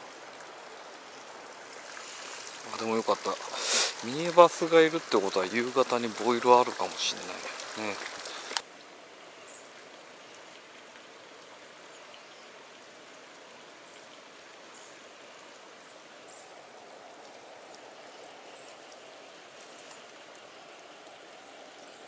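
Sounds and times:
stream flowing over rock: 0.0s - 22.0s
faint high ticks: 19.6s - 21.2s.

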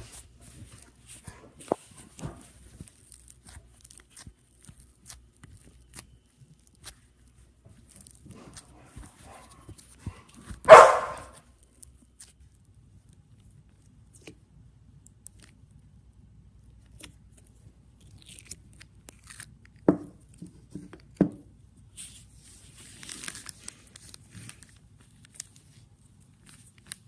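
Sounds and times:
crinkly rustling: 0.0s - 10.7s, 22.0s - 27.0s.

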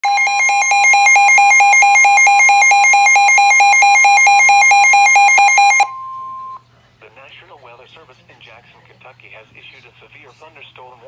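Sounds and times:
fast pulsing alarm beep: 0.0s - 6.6s
steady high alarm tone: 0.0s - 6.6s.

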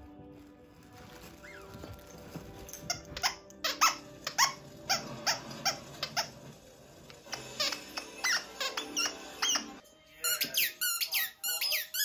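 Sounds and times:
squeaky dog toy squeaking: 2.8s - 6.3s, 7.3s - 12.0s.

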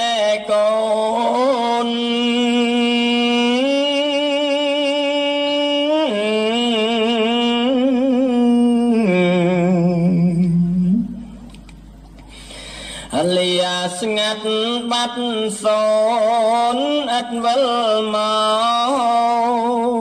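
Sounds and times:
man chanting: 0.0s - 11.2s, 13.0s - 20.0s.

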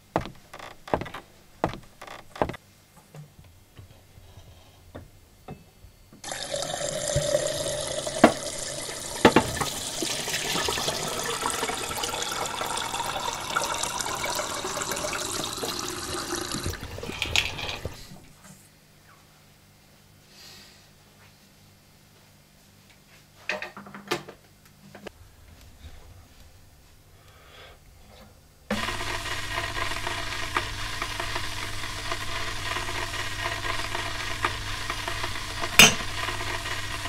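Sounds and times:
sharp knocks: 0.2s - 2.6s
tap water filling kettle: 6.2s - 18.2s, 28.7s - 37.0s.

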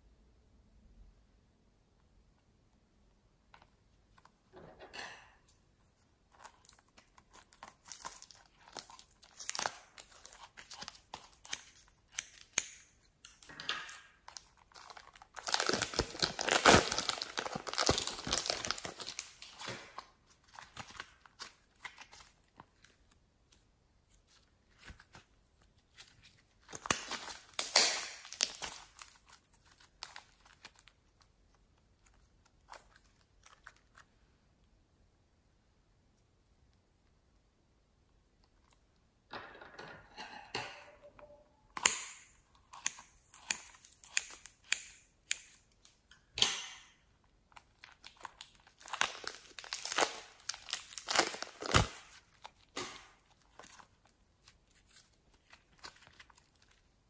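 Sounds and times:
plastic bag crinkling: 14.3s - 23.0s, 26.1s - 31.3s, 47.7s - 54.1s.

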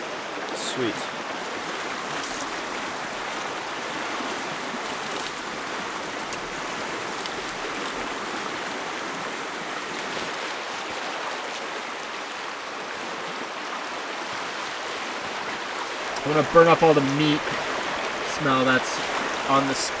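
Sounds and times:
river rapids rushing: 0.0s - 20.0s
campfire crackling: 0.8s - 10.3s.

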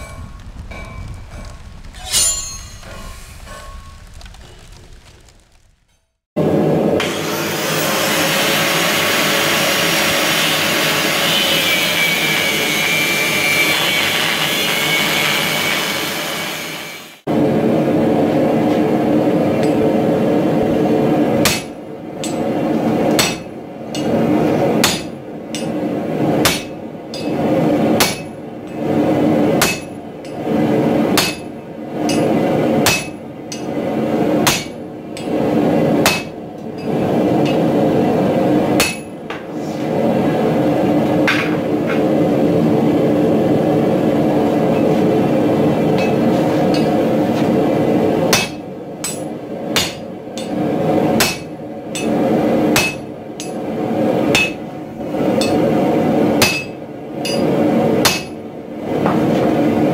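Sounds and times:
sledgehammer blows on metal: 0.0s - 4.0s
angle grinder on steel: 7.0s - 17.1s
steady background noise: 17.2s - 59.9s.

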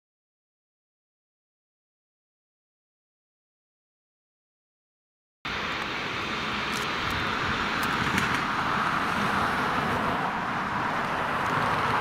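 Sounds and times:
jet engines rushing and whining: 5.5s - 12.0s.

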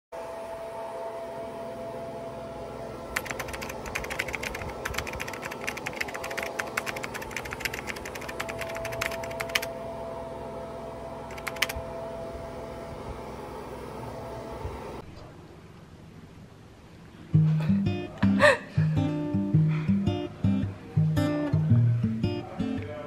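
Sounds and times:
keyboard typing clicks: 3.2s - 9.7s, 11.3s - 11.8s.

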